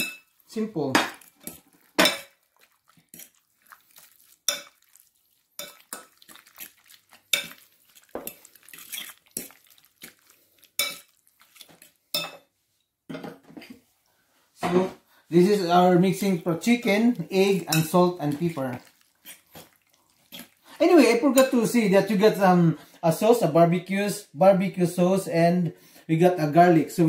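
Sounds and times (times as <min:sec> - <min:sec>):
fork clinking against glass bowl: 0:04.5 - 0:04.9, 0:05.6 - 0:09.6, 0:10.8 - 0:12.4.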